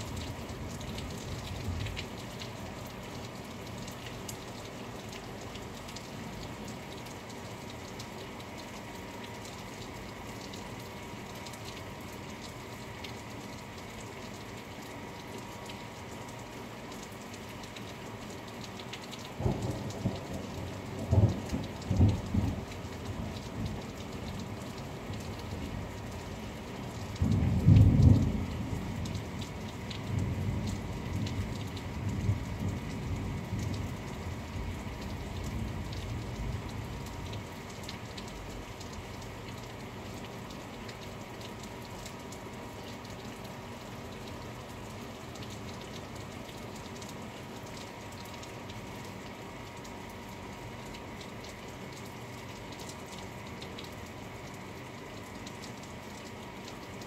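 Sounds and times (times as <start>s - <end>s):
steady rain falling: 0.0s - 57.0s
thunder rumbling: 27.2s - 29.2s.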